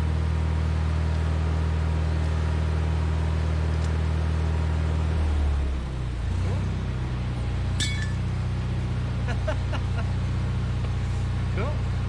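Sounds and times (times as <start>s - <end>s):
tractor diesel engine running: 0.0s - 12.0s
sharp metallic clink: 7.8s - 8.3s.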